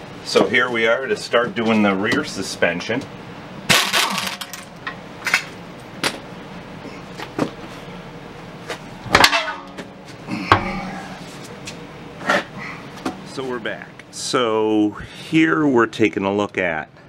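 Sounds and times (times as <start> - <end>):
metal ringing: 9.1 - 10.9.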